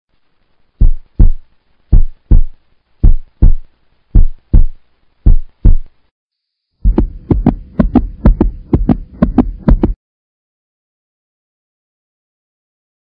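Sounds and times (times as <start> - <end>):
heartbeat thumps: 0.8 - 5.9, 6.8 - 10.0.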